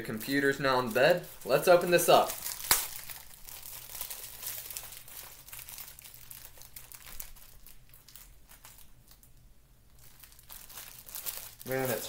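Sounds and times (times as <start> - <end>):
plastic mailing bag crinkling: 0.0 - 9.4, 10.0 - 12.0.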